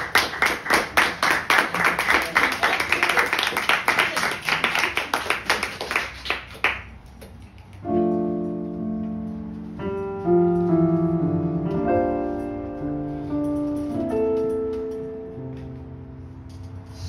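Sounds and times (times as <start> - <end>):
keyboard piano chords: 7.7 - 17.0.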